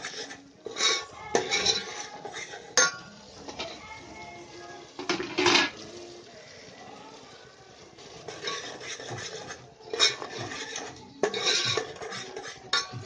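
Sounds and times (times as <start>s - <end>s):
metal spoon scraping metal pot: 0.0s - 3.9s, 5.0s - 5.8s, 8.0s - 13.0s.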